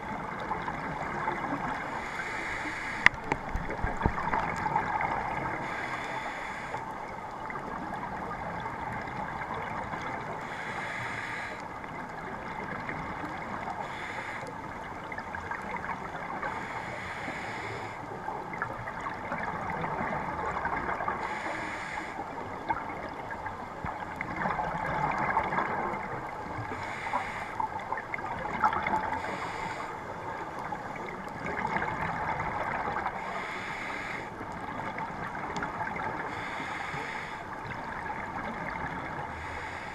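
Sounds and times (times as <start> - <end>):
bubbles gurgling underwater: 3.0 - 5.7, 18.2 - 21.3, 22.4 - 26.6, 27.6 - 33.3, 34.4 - 36.4, 37.5 - 39.3.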